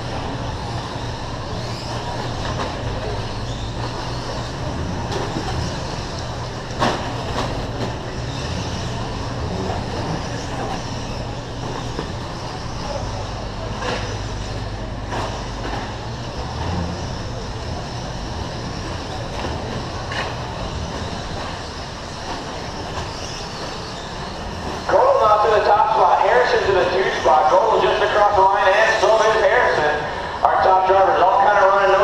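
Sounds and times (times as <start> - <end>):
low hum: 0.0 - 30.5
echoing race hall noise: 0.0 - 32.0
electric toy trucks racing: 0.0 - 32.0.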